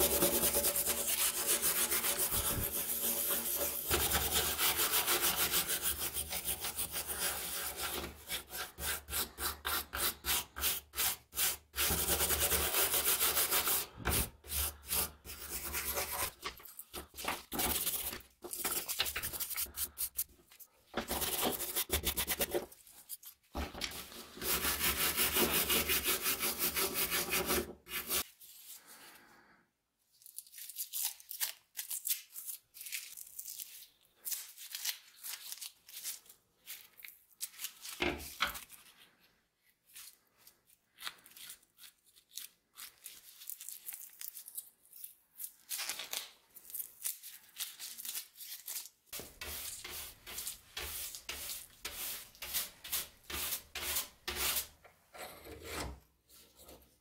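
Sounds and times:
brush sweeping across board: 0:00.0 - 0:09.4, 0:10.0 - 0:16.4, 0:23.9 - 0:28.3, 0:49.2 - 0:56.7
brush scrubbing rust off steel: 0:00.0 - 0:16.4, 0:23.9 - 0:28.3, 0:49.2 - 0:54.8
tape crinkling and tearing: 0:30.2 - 0:38.9, 0:40.9 - 0:49.2.

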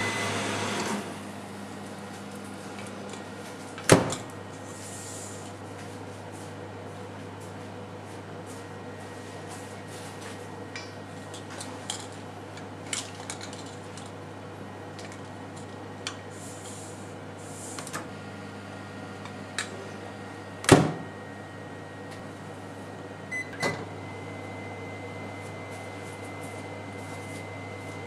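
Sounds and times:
oven door shutting thud: 0:20.6 - 0:21.1.

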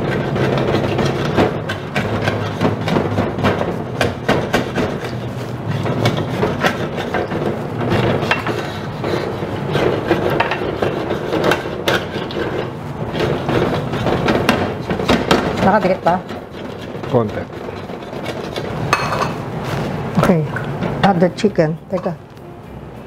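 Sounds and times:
wooden spoon scraping a wok: 0:00.0 - 0:21.0.

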